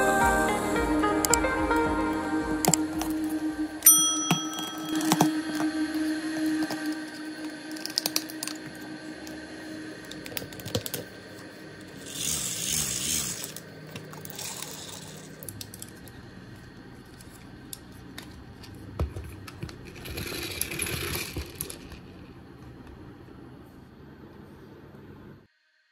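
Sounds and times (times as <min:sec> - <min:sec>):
plastic toy parts clicking: 0:07.7 - 0:08.7, 0:12.0 - 0:16.1
hand-cranked gears whirring: 0:11.8 - 0:16.1, 0:19.5 - 0:22.4.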